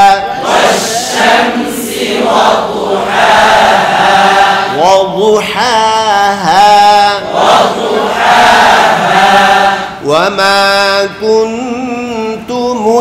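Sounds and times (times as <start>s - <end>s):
man chanting melodically: 0.0s - 1.2s, 4.7s - 7.4s, 10.0s - 13.0s.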